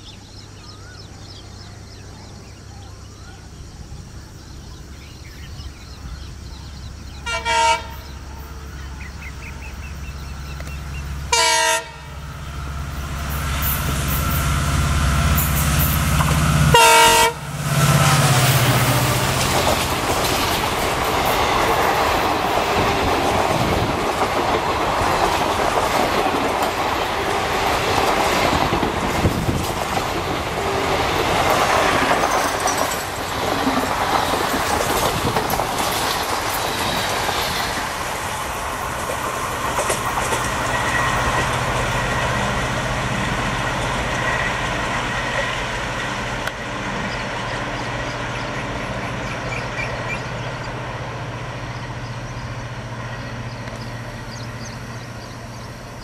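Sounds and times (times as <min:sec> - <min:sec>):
train wheels clattering over rails: 0:12.5 - 0:51.0.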